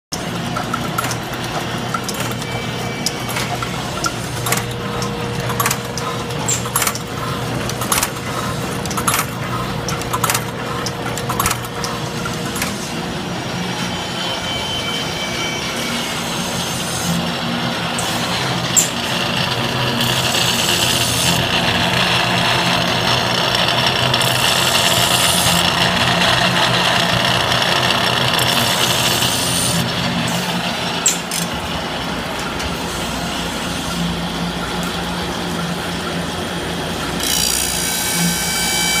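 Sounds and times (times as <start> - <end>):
machine hum: 0.1 - 39.0
sharp machine clicks: 0.2 - 12.9, 18.0 - 31.6
grinding wheel on metal: 18.2 - 29.9.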